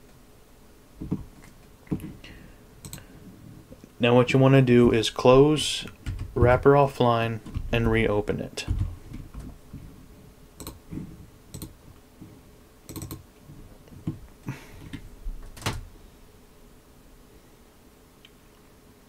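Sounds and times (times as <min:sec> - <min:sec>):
keyboard and mouse clicks: 0:02.8 - 0:03.1, 0:10.6 - 0:11.8, 0:12.9 - 0:13.2.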